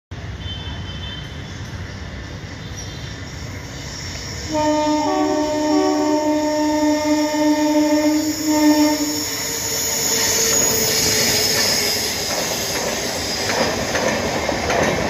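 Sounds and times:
train rumbling: 0:00.2 - 0:15.0
train horn: 0:04.5 - 0:09.9.

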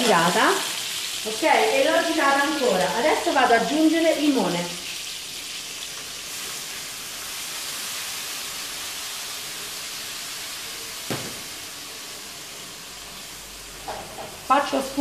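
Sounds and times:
meat sizzling in hot oil: 0:00.0 - 0:15.0
sharp knock: 0:11.1 - 0:11.5.

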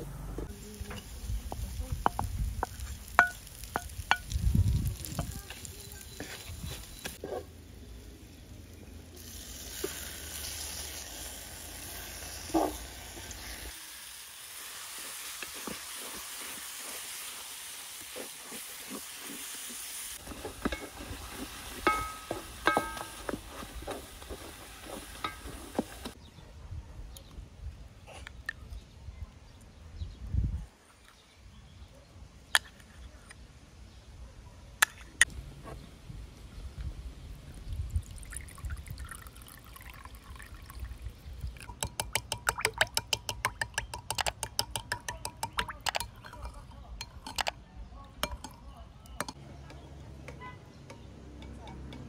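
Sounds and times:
food sizzling in a pot: 0:00.5 - 0:07.2, 0:09.2 - 0:26.2
wooden spoons knocking a pot: 0:02.0 - 0:04.4, 0:20.2 - 0:26.2, 0:41.7 - 0:47.6.

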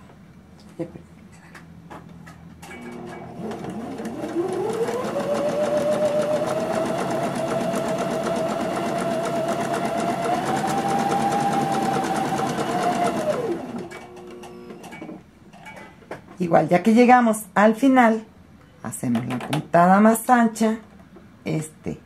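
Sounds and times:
sewing machine motor whine: 0:02.8 - 0:14.9.

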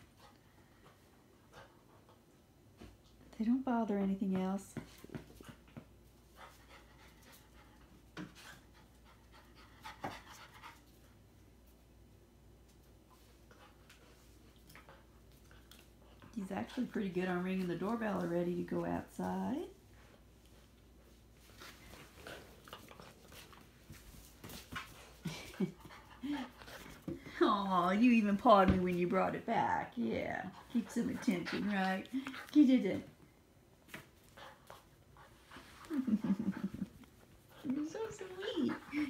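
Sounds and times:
puppy rustling and scuffling: 0:00.0 - 0:39.0
puppy panting: 0:24.4 - 0:27.4, 0:30.3 - 0:33.0, 0:34.3 - 0:39.0.

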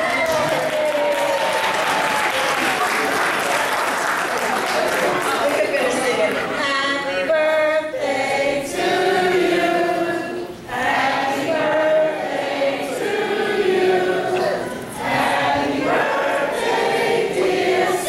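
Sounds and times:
voices singing together: 0:06.6 - 0:18.0.

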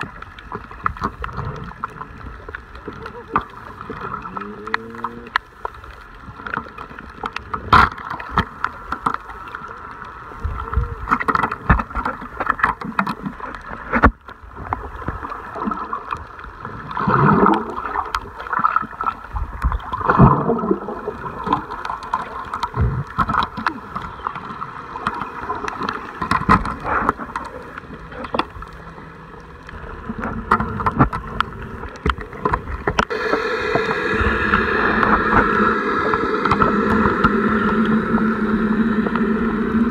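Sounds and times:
water sloshing and gurgling: 0:00.0 - 0:39.9
boat motor humming: 0:02.4 - 0:06.2, 0:22.6 - 0:39.9
bubbling rushes falling in pitch: 0:33.0 - 0:39.9.

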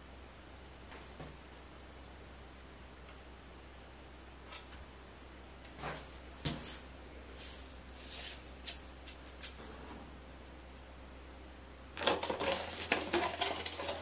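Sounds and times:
shaker rattle: 0:06.7 - 0:09.6.

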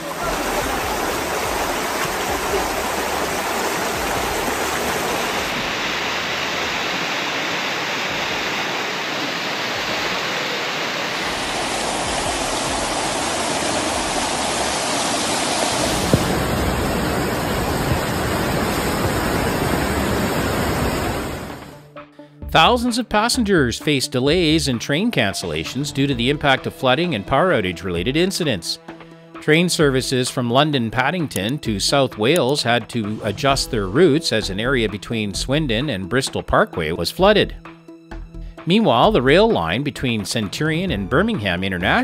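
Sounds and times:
floodwater rushing: 0:00.0 - 0:21.8.

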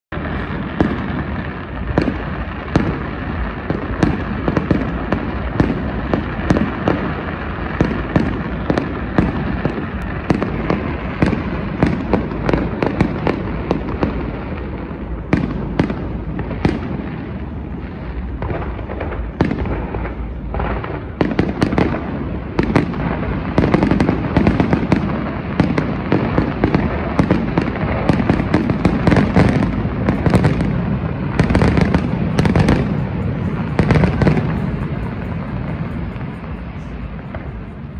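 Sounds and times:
fireworks cracks and bangs: 0:00.1 - 0:37.9
fireworks rumble: 0:00.1 - 0:37.9.

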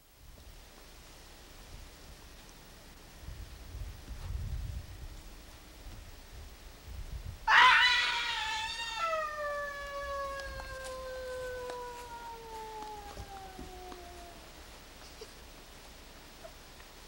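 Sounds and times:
person screaming: 0:07.5 - 0:12.9.

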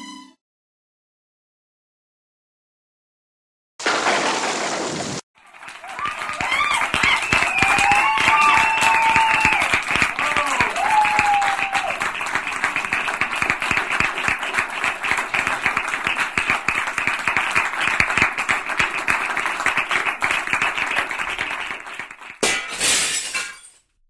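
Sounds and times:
loud crash: 0:03.8 - 0:05.2
audience applause: 0:04.4 - 0:22.4.

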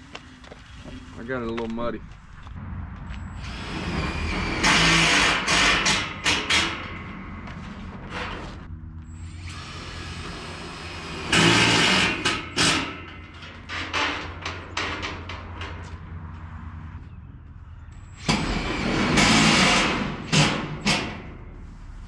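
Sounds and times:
steady low hum: 0:02.0 - 0:13.7
door rollers grinding on track: 0:03.4 - 0:16.1, 0:18.1 - 0:21.4.

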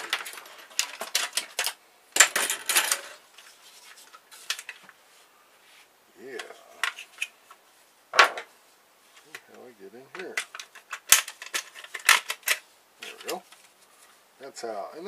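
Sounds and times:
plastic parts clattering on wood: 0:00.0 - 0:04.9, 0:10.1 - 0:13.7.

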